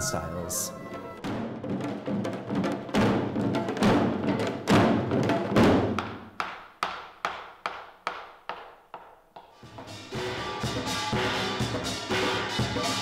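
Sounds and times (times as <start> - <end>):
drum ensemble beating in unison: 0.0 - 6.2.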